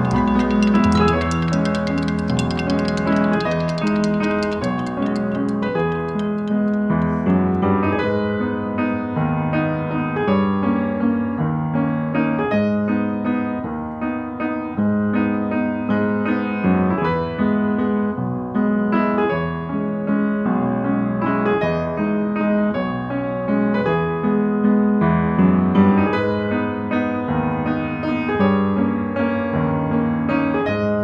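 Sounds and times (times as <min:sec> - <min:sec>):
piano music: 0:00.0 - 0:10.5.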